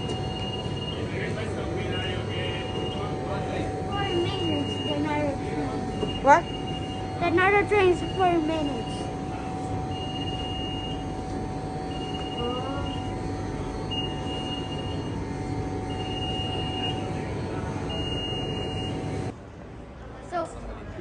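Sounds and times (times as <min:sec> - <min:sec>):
high electronic beeps: 0:03.9 - 0:09.1, 0:13.8 - 0:15.2.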